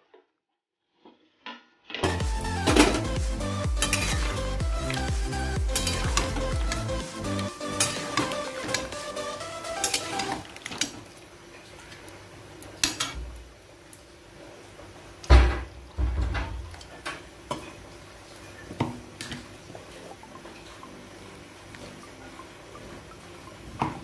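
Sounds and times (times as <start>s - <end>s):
spatula scraping a metal pan: 3.8s - 4.4s.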